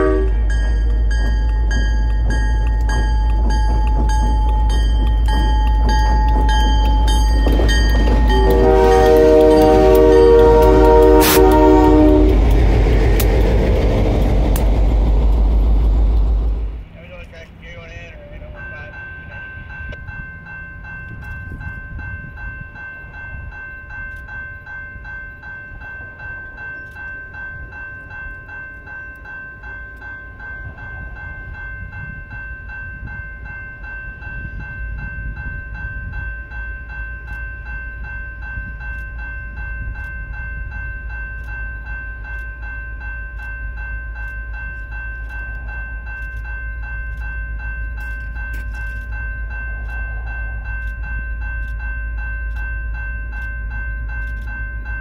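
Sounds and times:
level-crossing bell ringing: 0:00.0 - 0:14.8, 0:17.1 - 0:55.0
low rumble: 0:09.5 - 0:17.1.

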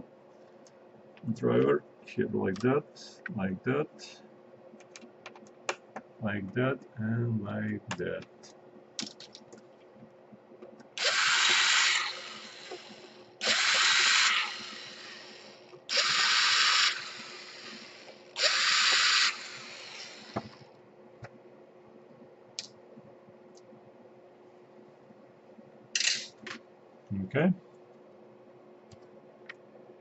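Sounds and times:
electric drill backing out screws: 0:11.0 - 0:20.6.

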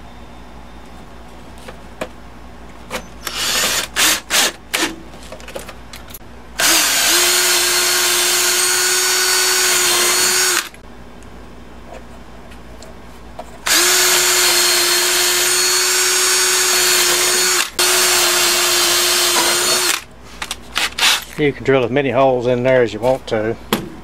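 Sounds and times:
cordless drill boring into wood: 0:03.2 - 0:04.6, 0:06.6 - 0:10.8, 0:13.7 - 0:20.1.

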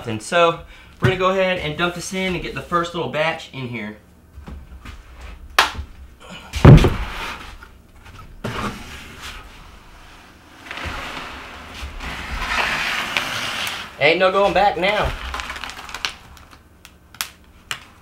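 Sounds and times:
bucket thumping on wood: 0:06.6 - 0:07.2
wet concrete sliding out: 0:10.7 - 0:15.8.

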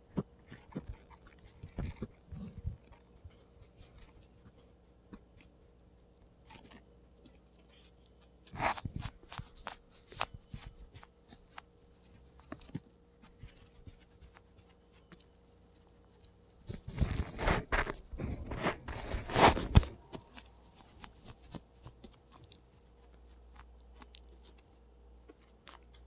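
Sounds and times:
guinea pig crunching vegetables: 0:00.0 - 0:26.0
chewing clicks: 0:00.1 - 0:12.9, 0:19.8 - 0:26.0.

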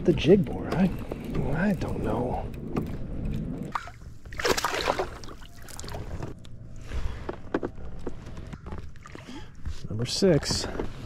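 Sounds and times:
water splashing around kayak: 0:03.6 - 0:06.4.

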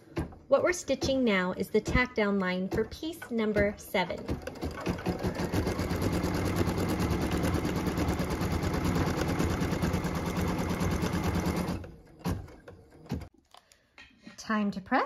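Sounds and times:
embroidery machine stitching: 0:02.7 - 0:13.3.

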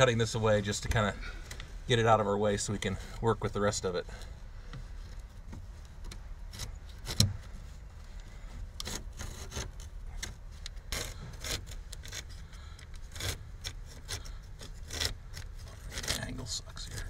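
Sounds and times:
blade scraping through fabric: 0:08.8 - 0:10.0, 0:10.8 - 0:17.0.

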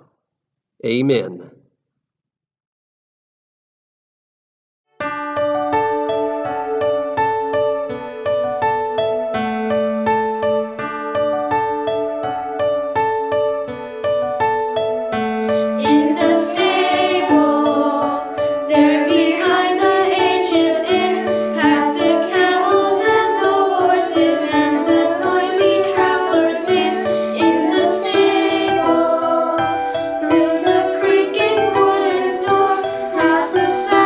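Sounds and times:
instrumental accompaniment: 0:05.0 - 0:34.0
children's choir singing a carol: 0:15.6 - 0:34.0.

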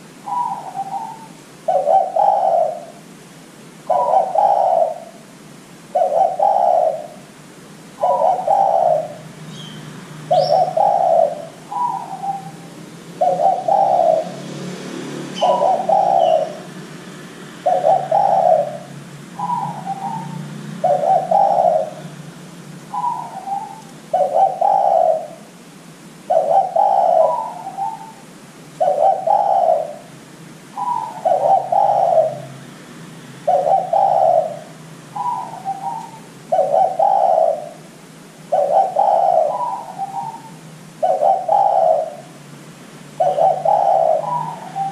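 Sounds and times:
dove cooing: 0:00.0 - 0:03.1, 0:03.8 - 0:25.6, 0:26.2 - 0:32.7, 0:33.4 - 0:42.4, 0:43.1 - 0:44.9.

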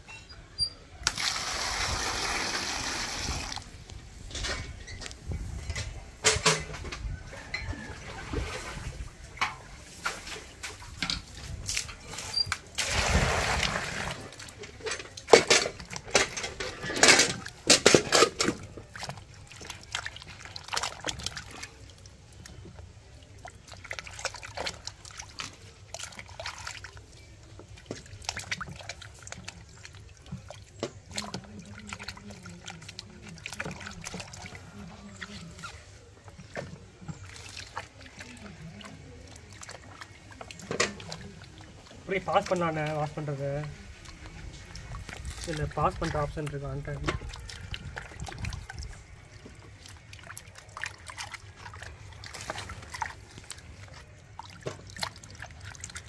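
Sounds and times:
water pouring and splashing: 0:00.6 - 0:56.0.

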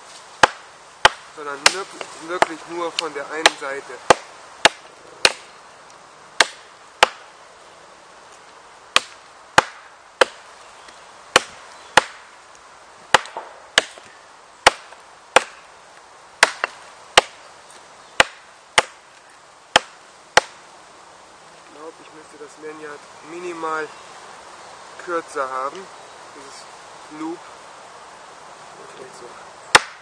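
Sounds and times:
knife chopping into log: 0:29.7 - 0:30.0.

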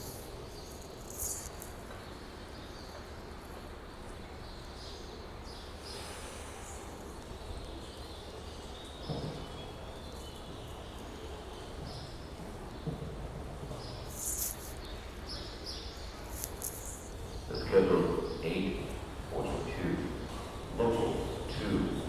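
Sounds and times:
rail platform background noise: 0:00.0 - 0:22.0
short rustle: 0:14.1 - 0:14.8.

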